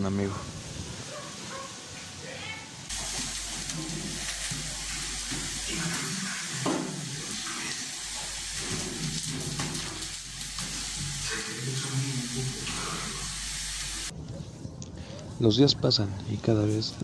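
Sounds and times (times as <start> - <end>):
steady hiss: 2.8 - 14.1
muffled voices: 11.2 - 13.4.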